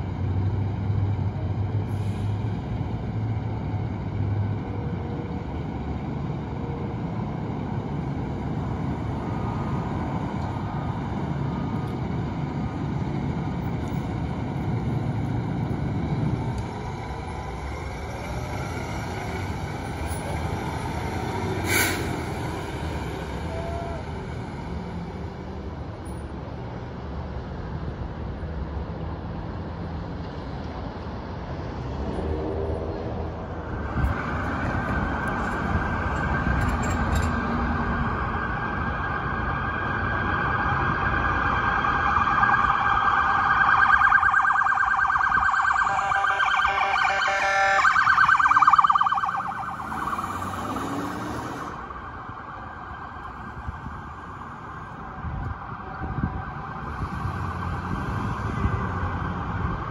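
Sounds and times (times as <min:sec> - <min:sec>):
traffic noise: 0:00.0 - 0:59.9
electronic siren wailing and yelping: 0:38.2 - 0:50.8.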